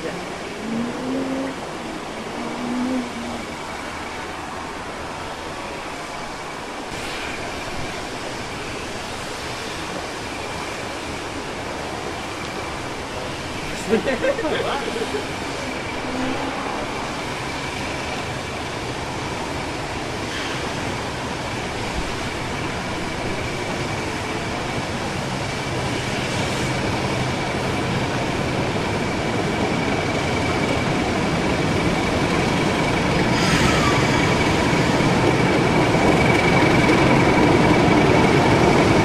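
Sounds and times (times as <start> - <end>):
locomotive engine and wheels: 0.0 - 39.0
steady high tone: 0.5 - 3.8.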